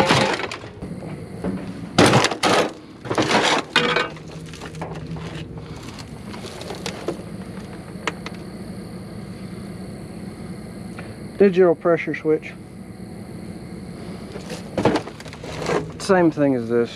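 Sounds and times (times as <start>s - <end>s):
scrap clattering and rattling: 0.0s - 8.5s, 14.1s - 16.9s.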